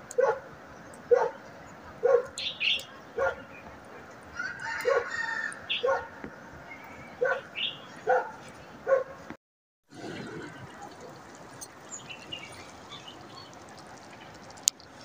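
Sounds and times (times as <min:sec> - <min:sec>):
dog barking: 0:00.2 - 0:00.4, 0:01.1 - 0:01.4, 0:02.0 - 0:02.4, 0:03.2 - 0:03.5, 0:04.8 - 0:05.2, 0:05.8 - 0:06.2, 0:07.2 - 0:09.2.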